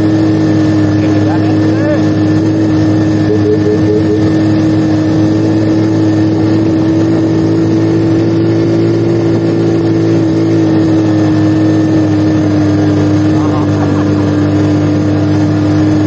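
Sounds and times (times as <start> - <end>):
motorcycle engine cruising: 0.0 - 16.0.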